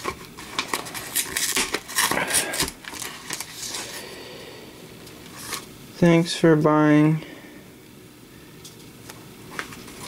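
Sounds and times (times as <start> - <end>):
cardboard and paper crackling: 0.0 - 4.0.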